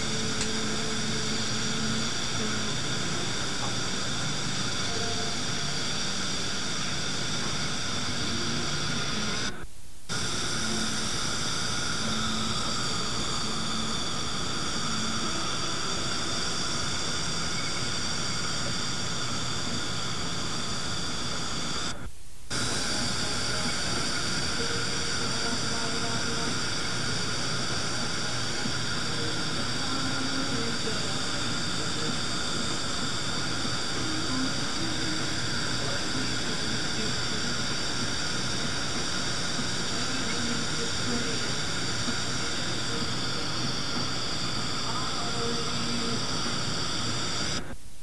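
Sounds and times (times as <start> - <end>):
faint high tones: 0.0 - 37.8
low hum: 0.0 - 48.0
steady hiss: 0.0 - 48.0.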